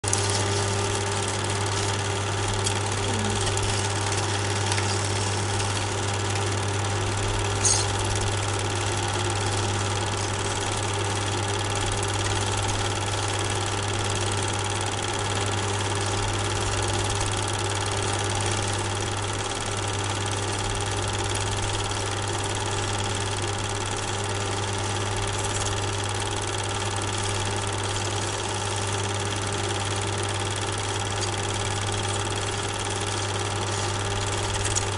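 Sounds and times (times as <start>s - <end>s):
motor droning: 0.1s - 11.6s.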